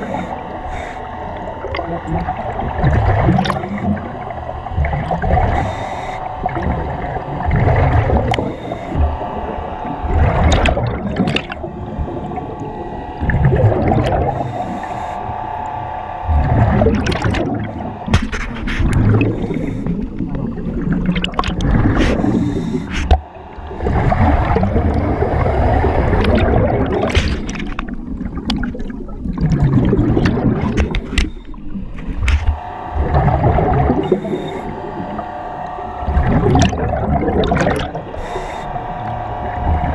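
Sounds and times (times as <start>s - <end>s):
regulator hissing on inhale: 0.0s - 2.6s, 5.3s - 7.0s, 8.2s - 10.2s, 11.7s - 15.8s, 17.7s - 20.2s, 21.9s - 26.3s, 32.6s - 36.1s, 37.8s - 39.9s
exhaust bubbling underwater: 0.0s - 39.9s.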